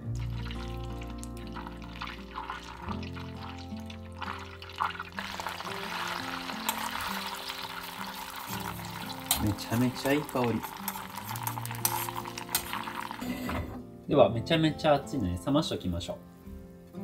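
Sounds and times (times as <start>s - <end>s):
background music: 0.0s - 17.0s
butter sizzling in a saucepan: 0.1s - 13.3s.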